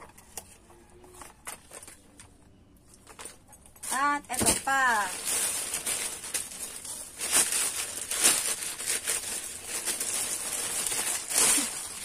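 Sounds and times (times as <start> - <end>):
bag rustling and crinkling: 3.0 - 12.0.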